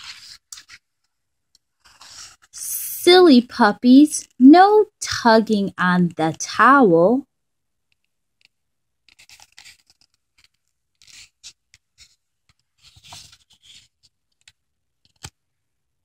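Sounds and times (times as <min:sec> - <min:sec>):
paper page rustling: 0:00.0 - 0:01.1, 0:01.7 - 0:02.6, 0:09.0 - 0:15.4.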